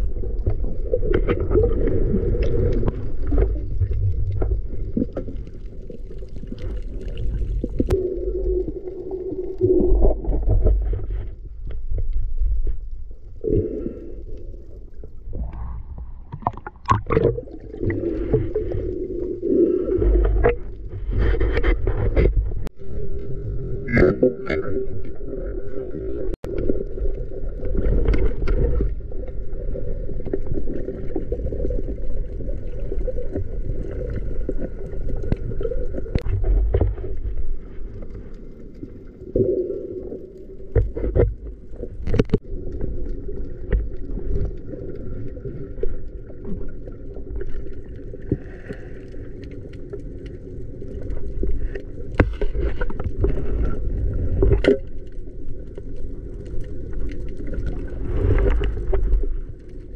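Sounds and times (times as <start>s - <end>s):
low underwater rumble: 0.0s - 59.9s
underwater droning hum: 0.0s - 59.9s
sharp knocks and scrapes: 20.1s - 22.7s.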